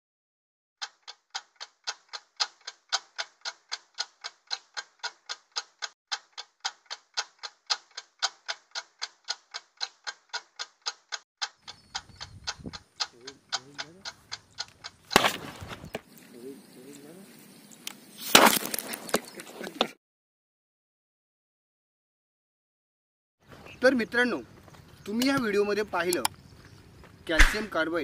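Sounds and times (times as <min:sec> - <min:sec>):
stopwatch ticking: 0:00.8 - 0:15.2.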